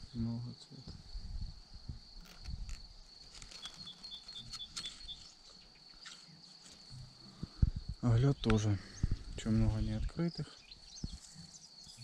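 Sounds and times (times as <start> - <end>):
high-pitched insect trill: 0.0 - 12.0
rustling and knocks of leaves: 2.1 - 7.2.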